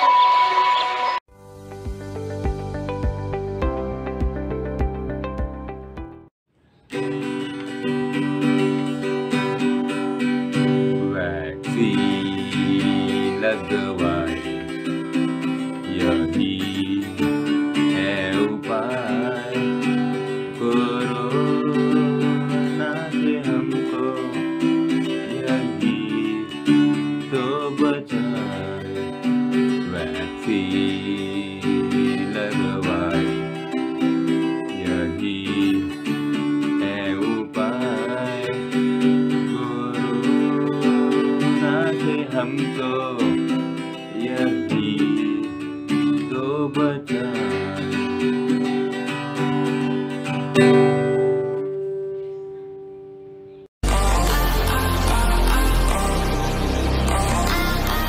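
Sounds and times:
electric guitar strumming chords: 1.4s - 6.3s, 6.9s - 58.0s
boy singing: 11.0s - 14.8s, 15.9s - 19.9s, 20.5s - 29.2s, 29.8s - 33.6s, 34.8s - 36.1s, 36.8s - 38.7s, 39.3s - 43.4s, 44.1s - 48.1s, 53.8s - 56.4s.

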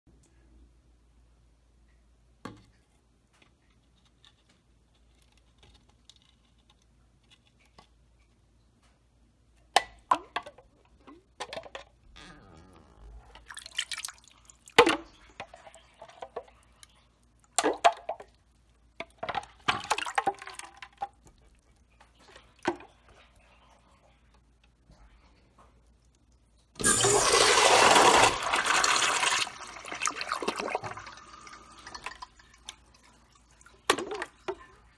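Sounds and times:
dripping water: 13.2s - 23.6s, 25.0s - 34.9s.

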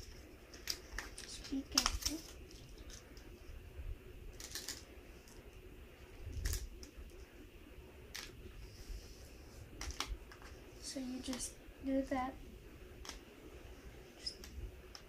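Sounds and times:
plastic balls clicking: 4.3s - 5.4s.

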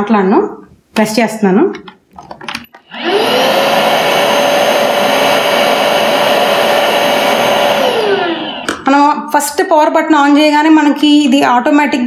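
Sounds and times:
handheld vacuum cleaner motor: 2.8s - 8.8s.

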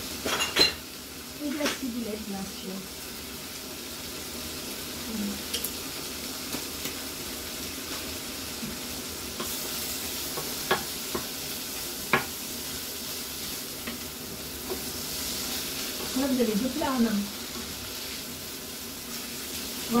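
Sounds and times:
food sizzling in a frying pan: 0.0s - 20.0s
spoon knocking against pan: 10.3s - 11.3s, 12.1s - 12.4s.

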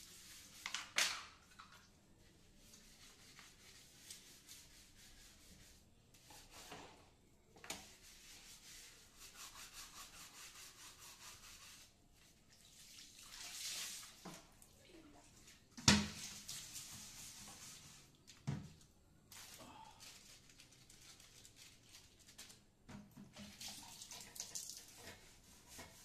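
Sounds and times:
scrubbing ceramic toilet: 7.8s - 14.6s, 15.3s - 18.2s, 23.3s - 26.0s.

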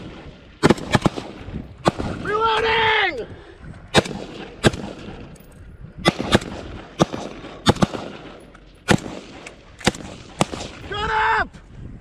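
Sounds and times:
rifle shots cracking: 0.0s - 2.4s, 3.9s - 10.9s.

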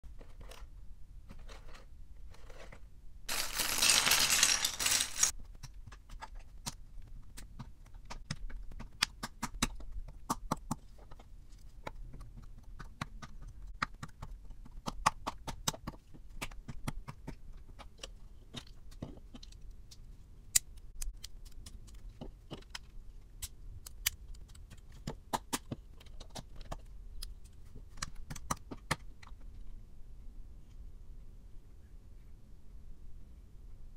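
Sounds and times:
small plastic clatters: 0.1s - 6.8s
packaging rustling and tearing: 3.3s - 5.3s
plastic bricks clicking together: 3.3s - 6.8s.

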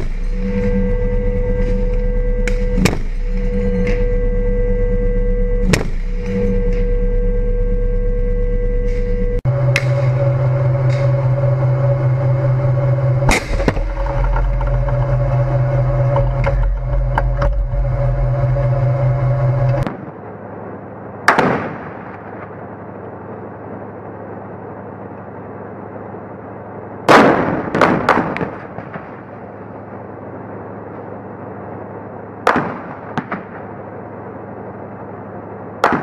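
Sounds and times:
tank engine droning: 0.0s - 36.0s.

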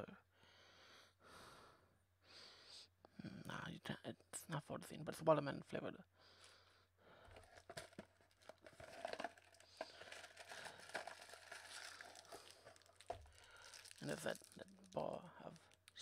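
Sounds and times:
plastic wrappers crinkling: 7.3s - 16.0s.

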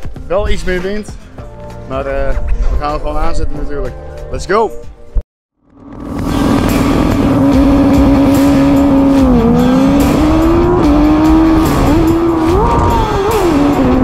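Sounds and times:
racing motorcycle engine revving: 5.6s - 14.0s
wind noise rushing: 6.0s - 14.0s.

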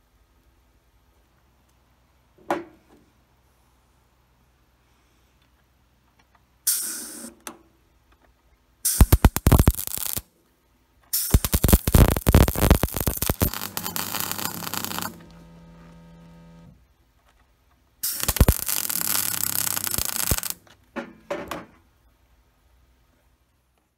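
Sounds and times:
welder arc crackling: 8.9s - 10.2s, 11.1s - 16.7s, 18.0s - 20.6s
low steady hum: 10.4s - 20.5s.

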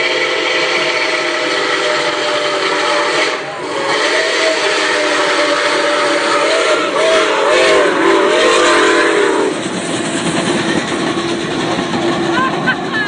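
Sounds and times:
steam train chime whistle: 0.0s - 9.6s
train passing on rails: 0.0s - 13.0s.

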